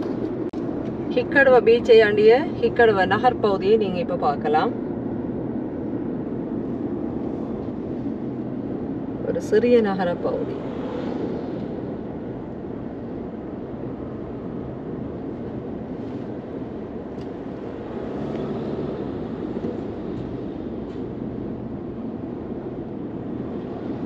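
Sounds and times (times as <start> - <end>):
car road and engine noise: 0.0 - 24.0.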